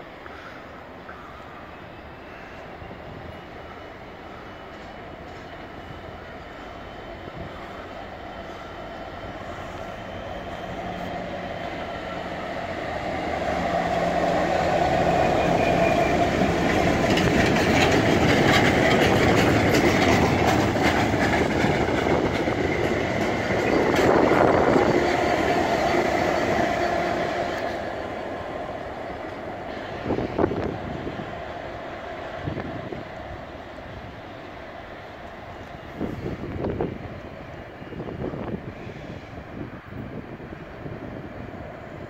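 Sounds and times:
diesel locomotive engine drone: 0:00.0 - 0:42.0
train wheels clattering over rail joints: 0:14.7 - 0:28.0.

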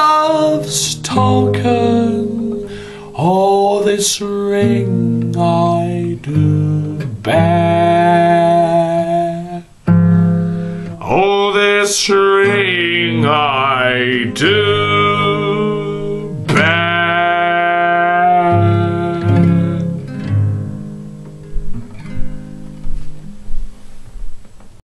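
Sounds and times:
man singing folk ballad: 0:00.0 - 0:09.7, 0:10.5 - 0:20.5
strummed acoustic guitar: 0:00.0 - 0:24.2.

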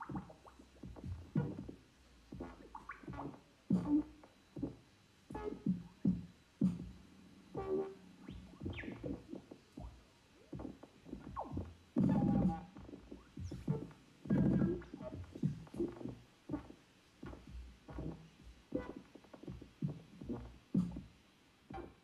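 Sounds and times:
experimental synthesizer music: 0:00.0 - 0:21.1.

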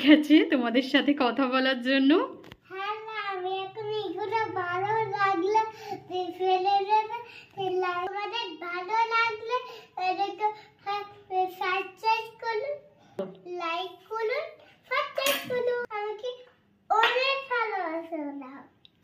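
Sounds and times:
girl singing: 0:02.7 - 0:11.5.

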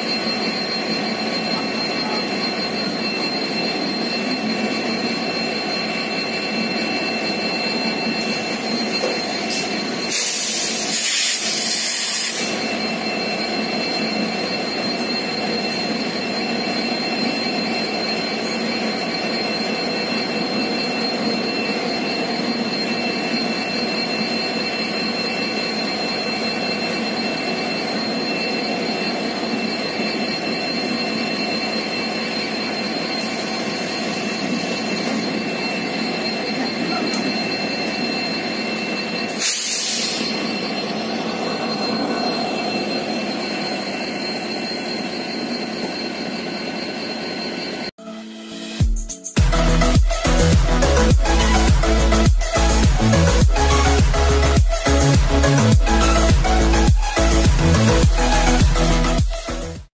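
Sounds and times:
thin steady high tones: 0:00.0 - 0:59.8
burst of hiss: 0:10.1 - 0:12.4.

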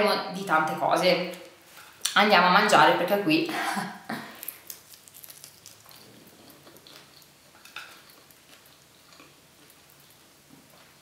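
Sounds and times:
person chewing food: 0:04.2 - 0:11.0.

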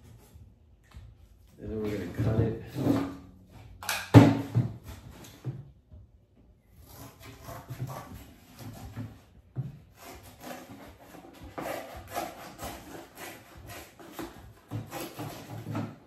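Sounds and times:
cardboard being cut: 0:06.8 - 0:09.3, 0:09.9 - 0:16.0.

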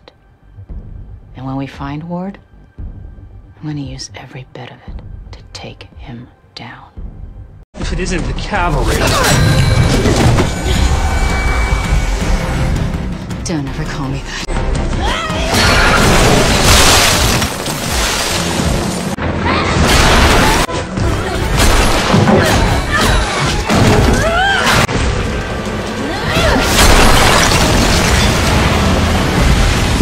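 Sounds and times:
action soundtrack music: 0:00.0 - 0:30.0.

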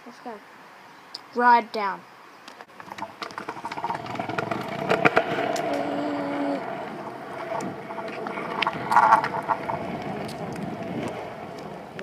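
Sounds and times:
scooter wheels rattling on asphalt: 0:02.7 - 0:12.0
steady hum: 0:02.7 - 0:12.0.

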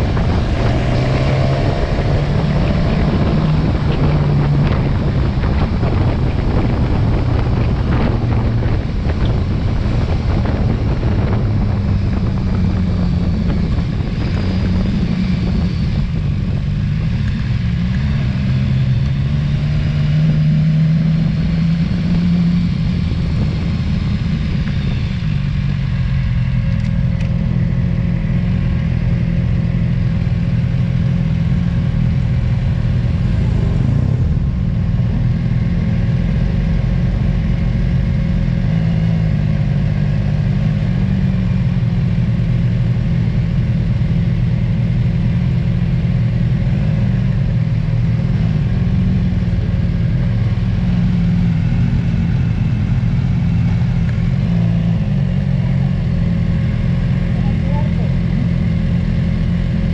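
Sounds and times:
wind noise on microphone: 0:00.0 - 0:28.1, 0:31.4 - 0:42.9
motorcycle engine running: 0:00.0 - 0:59.9.

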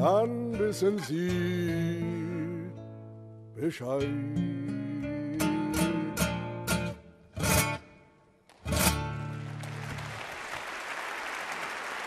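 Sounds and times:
classical guitar strummed chords: 0:00.0 - 0:09.6
applause: 0:08.5 - 0:12.0.

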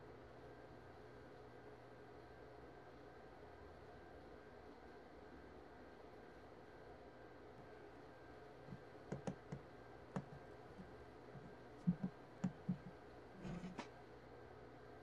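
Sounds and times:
faint clicks and light taps: 0:08.6 - 0:13.9.

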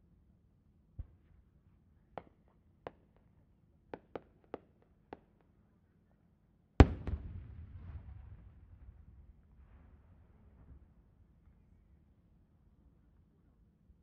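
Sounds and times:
firework boom with rumbling echo: 0:06.8 - 0:10.8.

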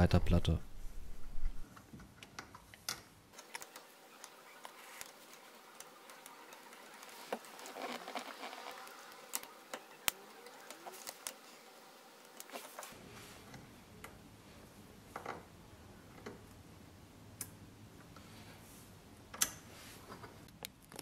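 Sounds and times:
small metal and plastic parts clicking: 0:02.2 - 0:10.2.

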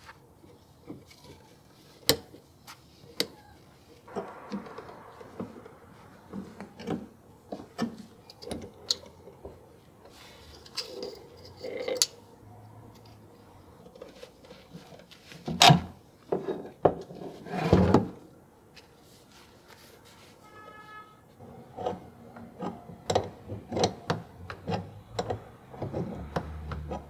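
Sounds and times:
sharp knock: 0:04.1 - 0:07.2.

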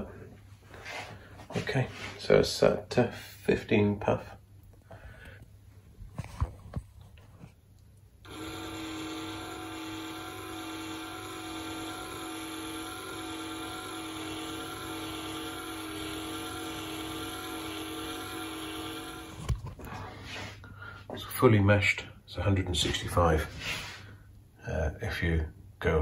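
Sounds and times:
small motor whining: 0:08.2 - 0:19.9.

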